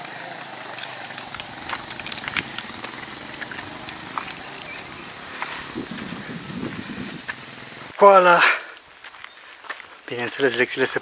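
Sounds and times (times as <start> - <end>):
steady high hiss: 0.0 - 8.4.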